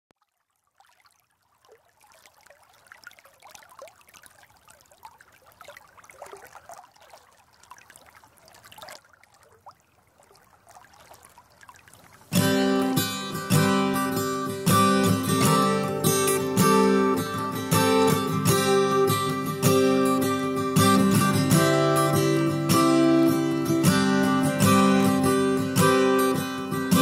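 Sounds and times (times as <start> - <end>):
stream trickling and gurgling: 0.1 - 27.0
acoustic guitar strummed chord: 12.4 - 27.0.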